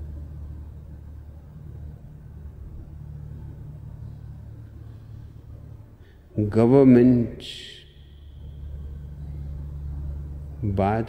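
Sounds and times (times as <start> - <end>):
low room rumble and hum: 0.0 - 11.0.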